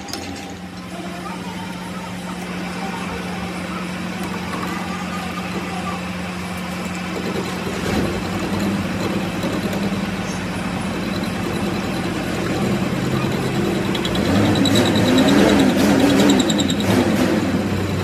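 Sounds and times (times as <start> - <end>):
metal lathe humming: 0.0 - 18.0
lathe tool cutting steel: 2.3 - 18.0
rapid high ticking: 4.2 - 17.1.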